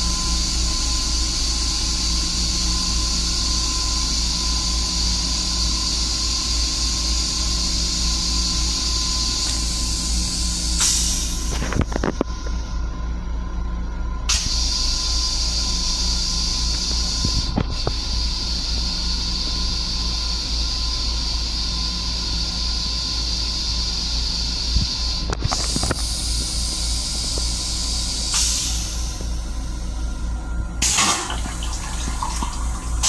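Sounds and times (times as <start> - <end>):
rail car rumble: 0.0 - 33.0
toilet flushing hiss: 0.3 - 11.6, 25.6 - 29.3, 30.8 - 33.0.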